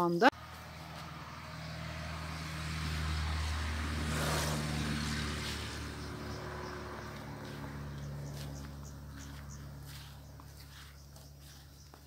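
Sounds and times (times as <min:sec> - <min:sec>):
vehicle engine humming: 0:00.3 - 0:12.0.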